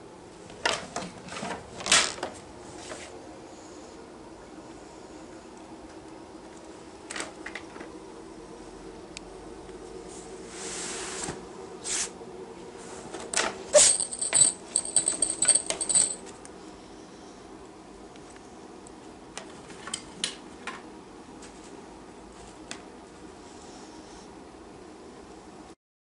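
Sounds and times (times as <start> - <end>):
small metal bell jingling: 13.8 - 16.2.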